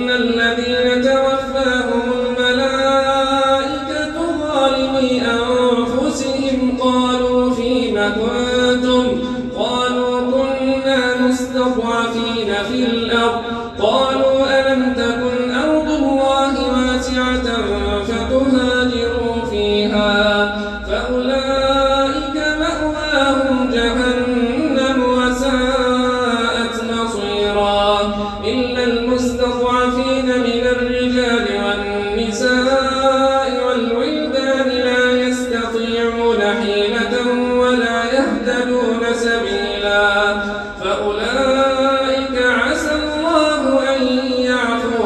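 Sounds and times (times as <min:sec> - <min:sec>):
man reciting melodically: 0:00.0 - 0:45.0
short breath: 0:13.4 - 0:13.8, 0:20.5 - 0:20.9, 0:28.2 - 0:28.4, 0:40.4 - 0:40.8.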